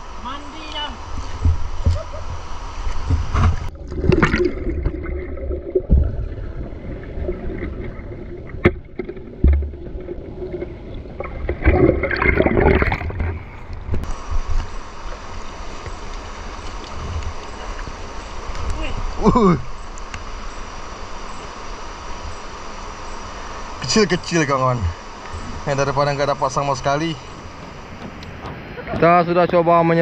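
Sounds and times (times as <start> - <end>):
water splashing and gurgling: 2.8 - 19.4
muffled underwater bubbling: 3.6 - 13.6.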